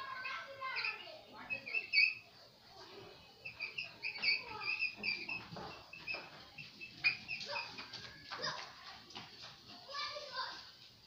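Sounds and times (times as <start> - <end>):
marker squeaking on whiteboard: 0.6 - 2.2, 3.3 - 8.7.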